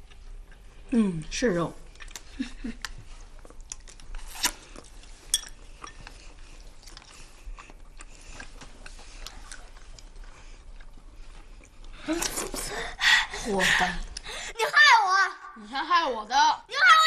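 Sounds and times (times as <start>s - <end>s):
chewing: 0.0s - 1.0s, 1.9s - 12.7s
chopsticks clinking on porcelain bowls: 5.3s - 6.1s.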